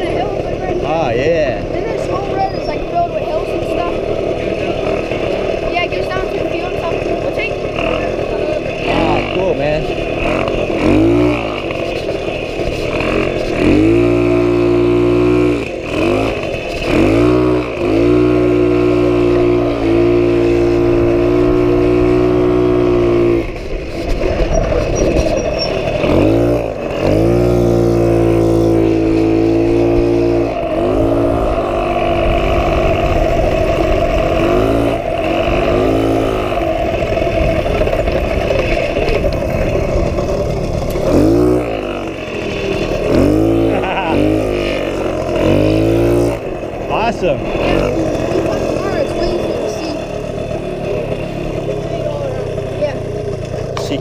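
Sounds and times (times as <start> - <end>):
moped engine revving: 0.0 - 54.0.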